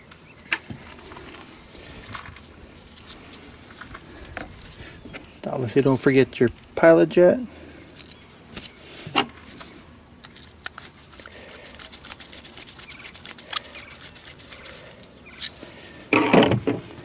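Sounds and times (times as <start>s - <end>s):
small metal parts clicking: 7.9s - 8.2s, 10.2s - 15.6s.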